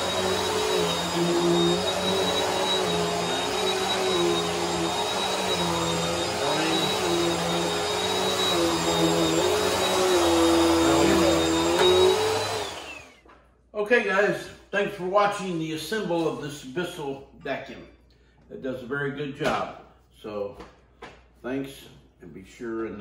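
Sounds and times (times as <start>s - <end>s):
upright vacuum cleaner running: 0.0s - 13.2s.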